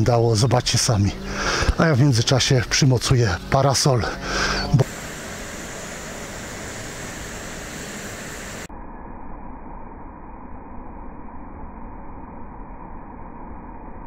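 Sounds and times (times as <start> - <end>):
rain hissing: 4.2 - 8.7
muffled rain: 4.8 - 8.7.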